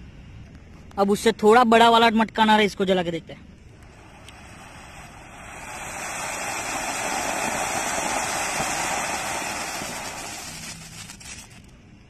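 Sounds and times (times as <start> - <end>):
firework fountain hissing: 3.7 - 11.7.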